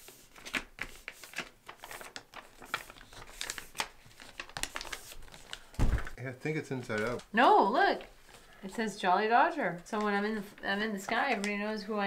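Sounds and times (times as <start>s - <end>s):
paper rustling and crinkling: 0.0s - 6.2s, 6.8s - 7.3s.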